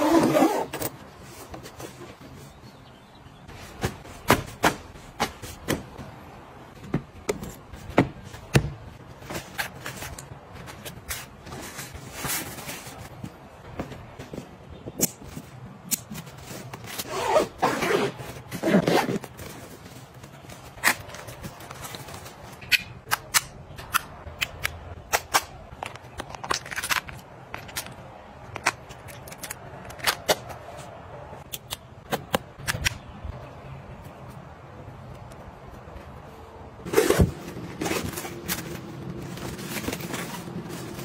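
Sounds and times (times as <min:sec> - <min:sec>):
fabric and plastic rustling: 0:03.5 - 0:22.6, 0:35.9 - 0:41.0.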